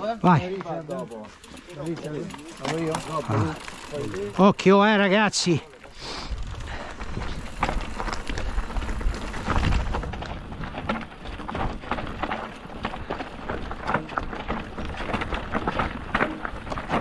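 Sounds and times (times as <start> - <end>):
bike rattling over stones: 0.0 - 17.0
wind rumbling on microphone: 6.2 - 17.0.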